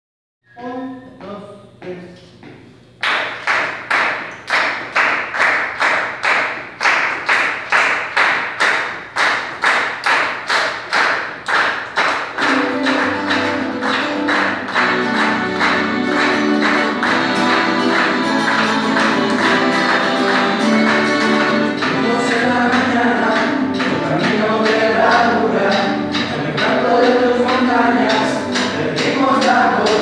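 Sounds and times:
strummed rhythm: 0:12.0 - 0:30.0
accordion and wind melody: 0:12.4 - 0:22.2.

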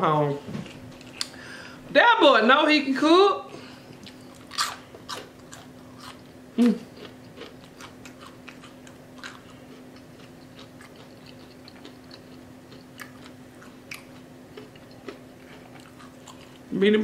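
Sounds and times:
faint steady hum: 0:00.0 - 0:17.0
chewing crispy food: 0:00.6 - 0:01.4, 0:03.8 - 0:16.7
person humming: 0:06.6 - 0:06.9.

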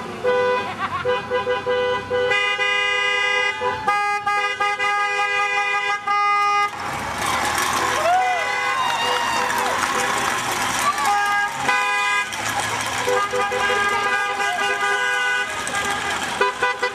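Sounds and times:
broad rush of noise: 0:06.7 - 0:16.9
two-note car horn honking: 0:13.0 - 0:16.9.

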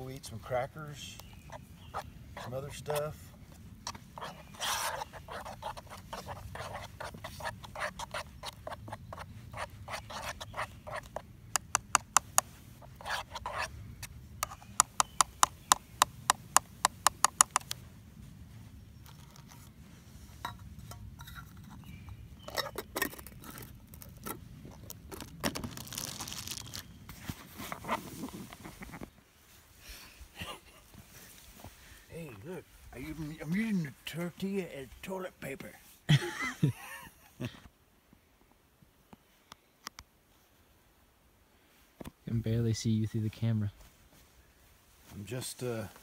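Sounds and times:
spoon scraping a metal pot: 0:03.9 - 0:11.2.

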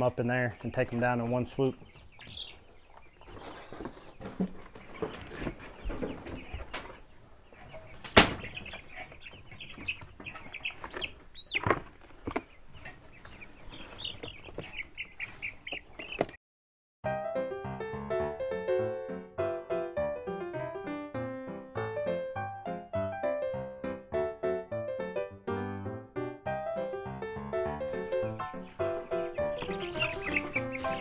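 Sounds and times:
chicks peeping: 0:00.0 - 0:16.4, 0:27.9 - 0:31.0
chick squawking: 0:00.2 - 0:16.4, 0:27.9 - 0:31.0
scuffling in litter: 0:03.0 - 0:07.1, 0:27.9 - 0:31.0
wings flapping: 0:27.9 - 0:31.0.

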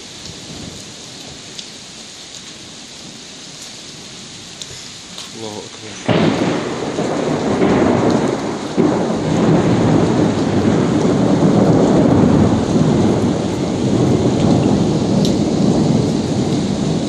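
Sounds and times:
heavy rain: 0:00.0 - 0:17.0
rolling thunder: 0:05.8 - 0:17.0.

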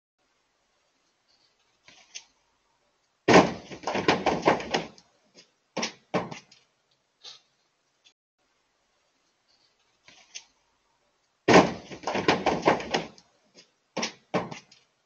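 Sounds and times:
deer crashing into truck: 0:03.3 - 0:05.0, 0:11.5 - 0:13.2
sharp knocks on metal: 0:03.3 - 0:05.0, 0:05.8 - 0:06.5, 0:11.5 - 0:13.2, 0:14.0 - 0:14.6.

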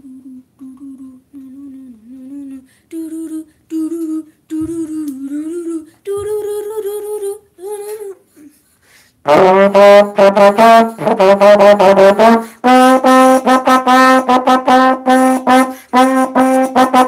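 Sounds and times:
boy humming: 0:00.0 - 0:08.7.

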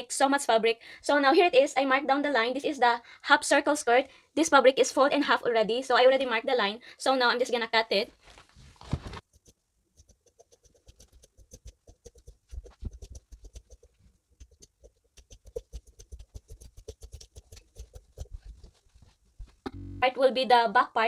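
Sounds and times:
scissors snipping fabric: 0:09.2 - 0:18.8.

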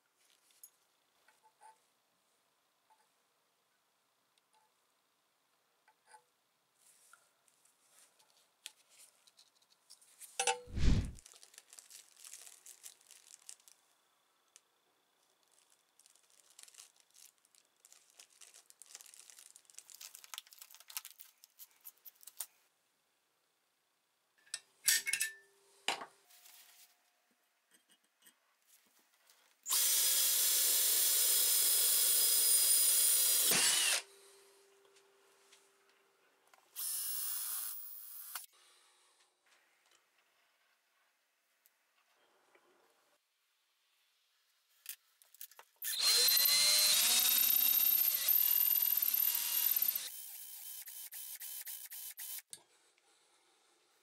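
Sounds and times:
rustling of plastic bags: 0:10.8 - 0:13.9, 0:15.2 - 0:22.6
electric drill boring into steel: 0:29.7 - 0:34.1, 0:36.8 - 0:38.5, 0:45.8 - 0:52.4.

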